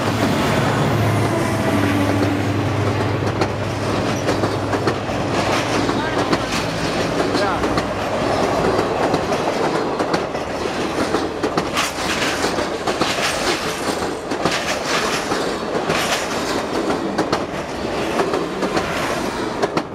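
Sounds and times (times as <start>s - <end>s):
train rumble: 0.0s - 19.9s
train wheels clattering over rail joints: 2.1s - 19.9s.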